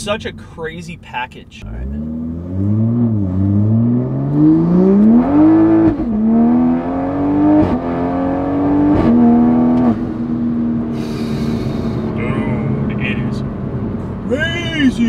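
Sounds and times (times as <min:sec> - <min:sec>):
car engine accelerating hard: 0:01.6 - 0:15.0.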